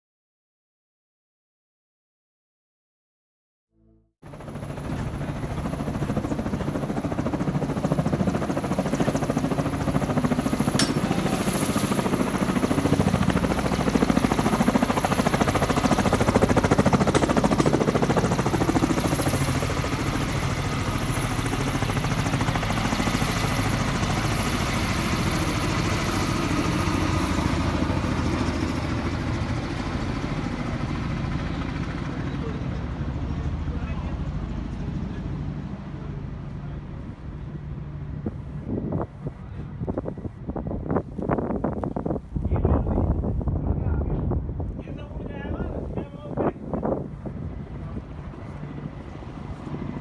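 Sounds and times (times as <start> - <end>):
helicopter rotors beating: 4.2 - 50.0.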